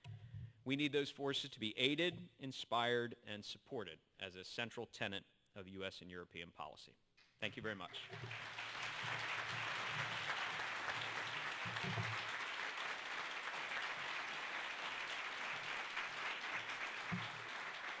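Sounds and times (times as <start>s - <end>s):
audience applauding: 7.9s - 18.0s.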